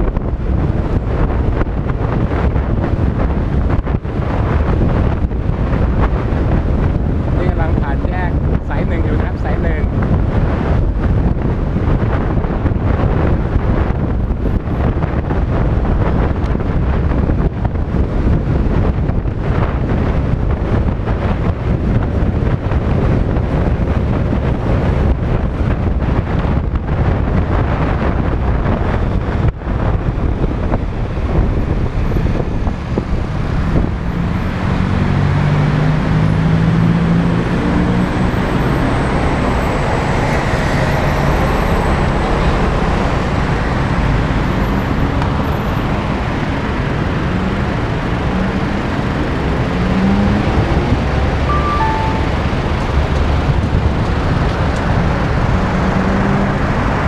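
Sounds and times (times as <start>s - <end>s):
road traffic: 0.0s - 57.0s
wind buffeting microphone: 0.0s - 57.0s.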